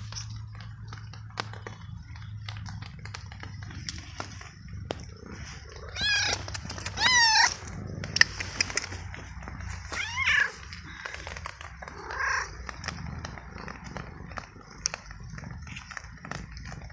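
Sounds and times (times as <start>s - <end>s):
cat meowing: 5.8s - 7.8s, 9.8s - 11.1s, 11.9s - 12.6s.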